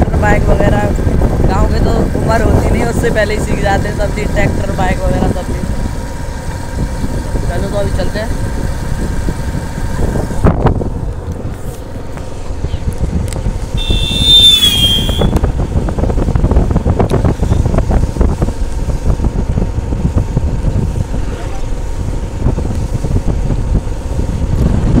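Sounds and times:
wind buffeting microphone: 0.0 - 25.0
motorcycle engine running: 3.8 - 25.0.

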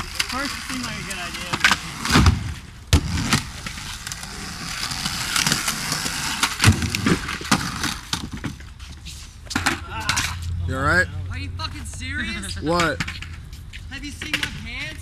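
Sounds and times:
skateboard wheels rolling on concrete: 0.0 - 15.0
skateboard clacking on concrete: 12.7 - 13.4, 14.0 - 15.0.

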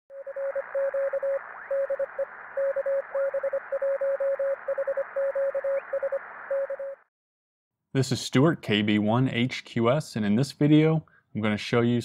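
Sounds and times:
morse code beeping: 0.1 - 7.0
radio band hiss: 0.4 - 3.8.

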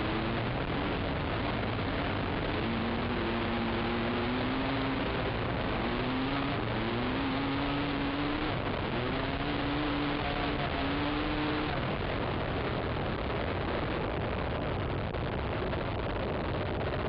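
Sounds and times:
quad engine revving: 0.0 - 12.8
rushing wind and ground noise: 0.0 - 17.0.

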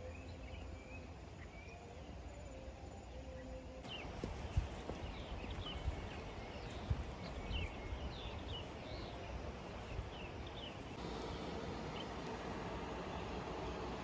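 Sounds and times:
birds chirping: 3.1 - 12.2
footsteps on dirt trail: 3.8 - 11.0
outdoor hiss: 3.8 - 14.0.

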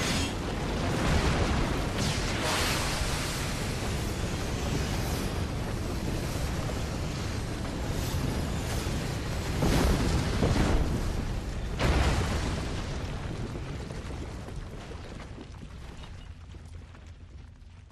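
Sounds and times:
loud blast-like rush: 1.0 - 5.3.

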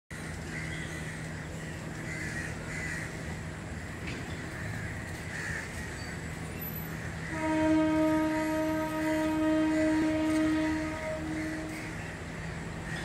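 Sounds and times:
crows cawing: 2.0 - 3.9, 4.5 - 6.2, 10.9 - 13.0
train horn: 7.2 - 12.4.

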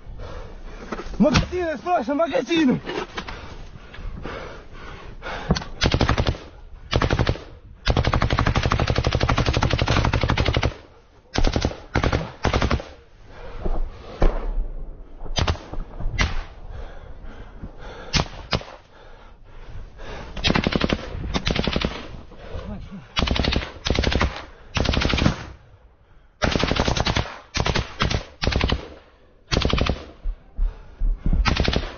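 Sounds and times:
automatic gunfire bursts: 5.8 - 10.8, 11.4 - 12.9, 23.2 - 25.5, 26.4 - 28.9, 29.5 - 30.0, 31.5 - 31.9
single gunshots: 15.3 - 16.6.

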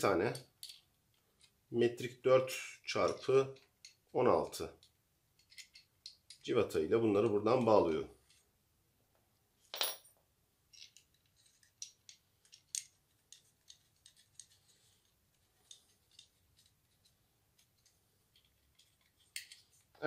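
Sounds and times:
metallic clicks and scrapes: 4.8 - 6.5, 10.7 - 20.0.

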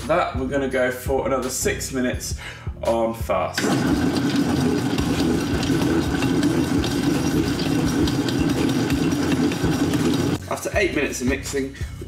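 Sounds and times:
stand mixer motor drone: 3.6 - 10.4.

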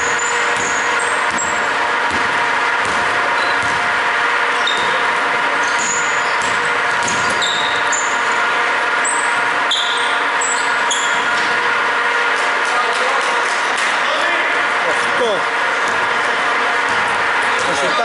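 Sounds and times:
sneakers squeaking on floor: 0.0 - 1.7, 4.6 - 8.4, 9.0 - 11.6
ball bouncing thuds: 0.4 - 4.0, 4.7 - 5.1, 6.3 - 7.6, 16.8 - 17.7.

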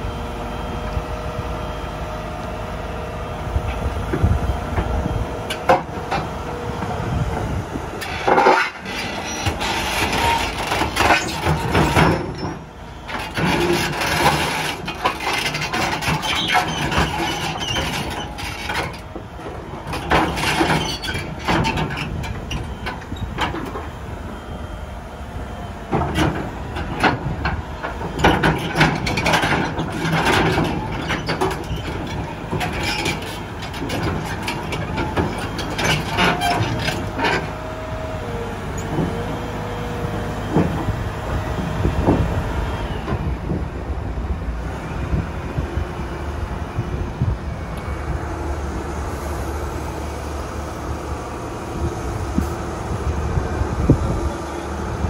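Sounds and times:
diesel engine under load: 0.0 - 55.0
steel tracks clanking: 3.7 - 24.3.

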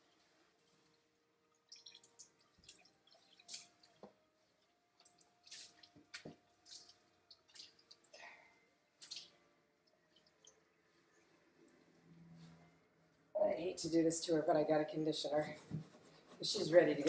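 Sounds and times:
water dripping into a tub: 0.0 - 11.9.

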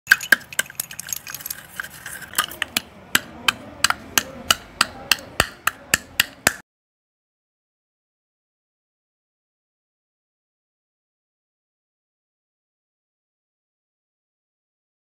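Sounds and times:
chalk sticks clinking: 0.1 - 6.6
pounding in a steel bowl: 0.1 - 6.6.

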